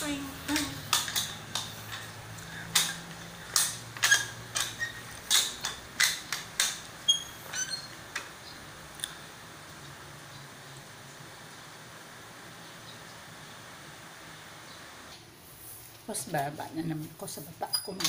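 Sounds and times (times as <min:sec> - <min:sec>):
mop clacking on tiled floor: 0:00.0 - 0:08.4
short squeaks: 0:03.6 - 0:06.2, 0:07.0 - 0:08.0.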